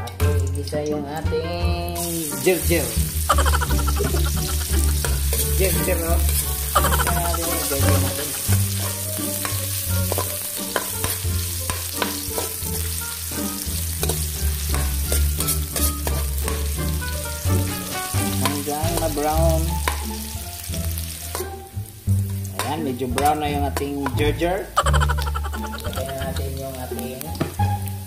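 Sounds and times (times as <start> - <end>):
ginger sizzling in hot oil: 1.9 - 28.0
metal spatula scraping a wok: 4.2 - 6.9, 7.5 - 19.1.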